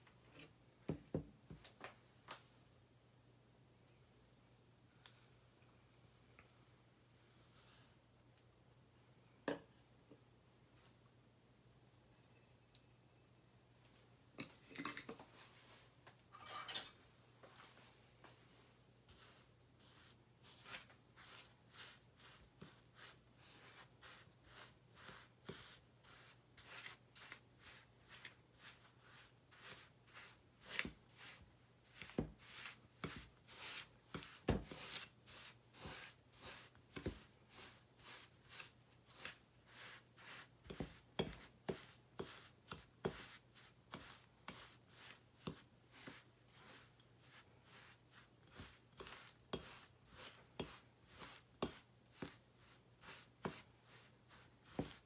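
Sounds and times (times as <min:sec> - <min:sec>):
fork scraping ceramic bowl: 0:19.1 - 0:55.0.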